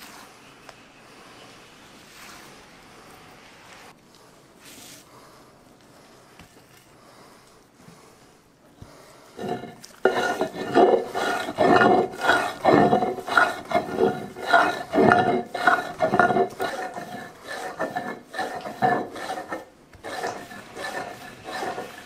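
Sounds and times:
stone grinding on stone: 9.4 - 22.0.

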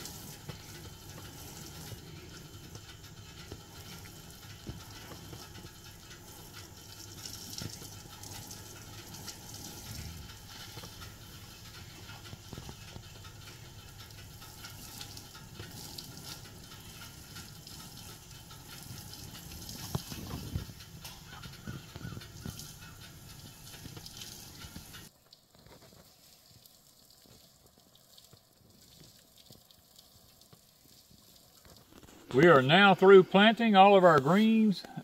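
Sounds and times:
hose nozzle spraying water: 0.0 - 25.1.

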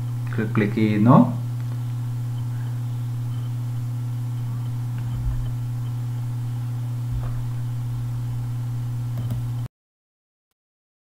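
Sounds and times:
low hum: 0.0 - 9.7
soft low thumps: 5.0 - 5.8, 7.0 - 9.4.

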